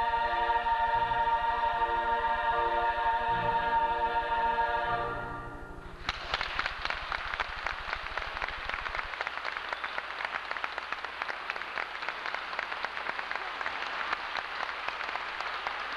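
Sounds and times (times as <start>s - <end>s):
choir singing: 0.0s - 5.6s
audience applauding: 6.0s - 15.9s.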